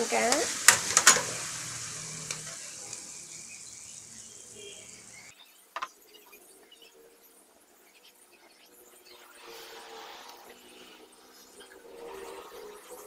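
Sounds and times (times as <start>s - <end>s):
sauce sizzling in a wok: 0.0s - 5.4s.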